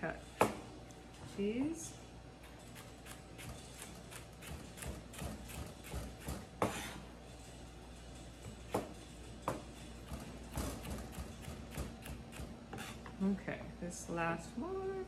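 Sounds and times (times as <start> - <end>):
knife chopping on cutting board: 2.8 - 7.0, 10.5 - 13.0.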